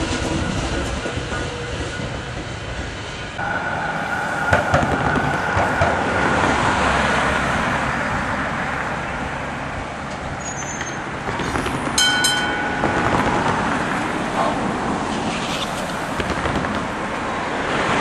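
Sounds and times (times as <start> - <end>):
road traffic tyres: 0.0 - 18.0
tram wheels rumbling on rail: 0.0 - 18.0
double metallic ring: 12.0 - 14.2.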